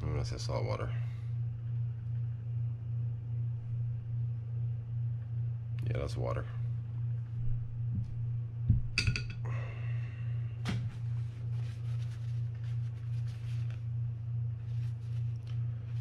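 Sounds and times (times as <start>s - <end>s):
steady low hum: 0.0s - 16.0s
paper towel rubbing inside spool: 10.9s - 16.0s.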